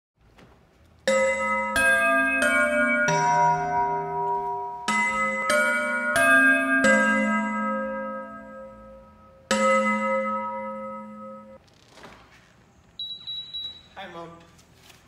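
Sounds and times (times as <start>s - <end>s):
bell-like chime notes: 1.1s - 11.6s.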